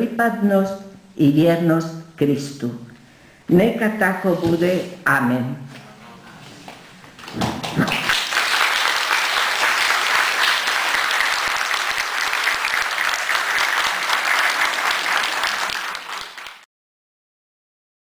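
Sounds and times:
audience applauding: 7.2 - 16.7.

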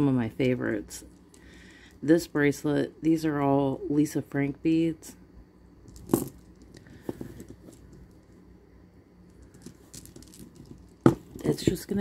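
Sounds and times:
plastic beads clicking: 9.3 - 11.1.

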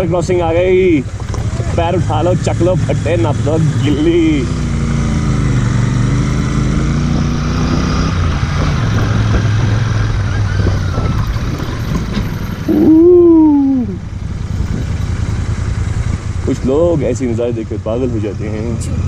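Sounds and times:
motorcycle engine running: 0.0 - 19.0
drawn-out vocal call: 12.7 - 14.1.

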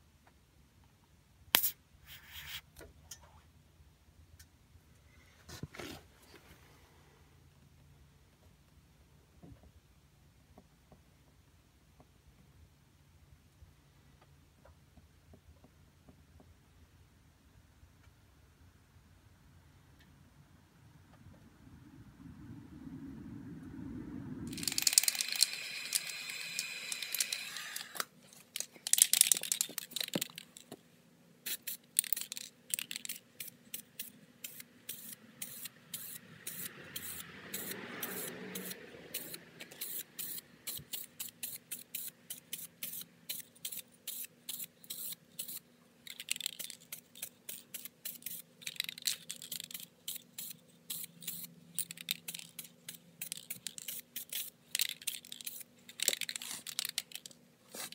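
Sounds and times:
spray-paint can hissing: 1.6 - 2.5, 24.5 - 28.0, 31.4 - 45.6, 46.2 - 57.9.

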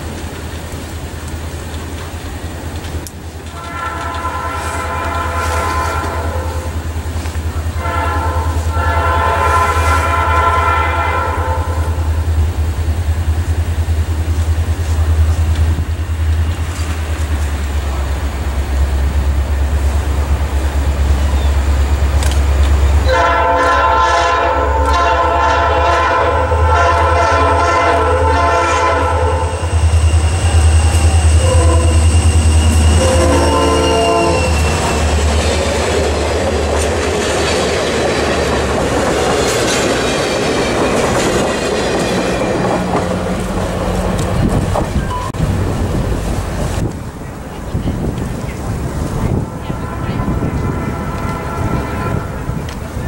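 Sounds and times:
locomotive air horn blasts: 3.5 - 6.9, 7.8 - 12.3, 23.0 - 35.2, 49.1 - 52.9.

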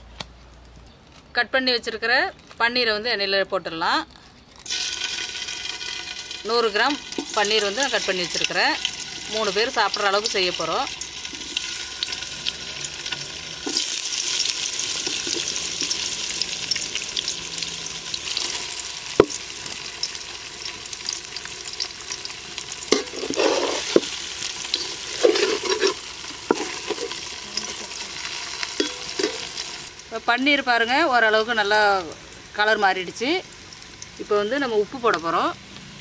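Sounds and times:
food sizzling in hot oil: 4.6 - 36.0
spatula scraping a wok: 10.9 - 17.4, 22.6 - 29.9.

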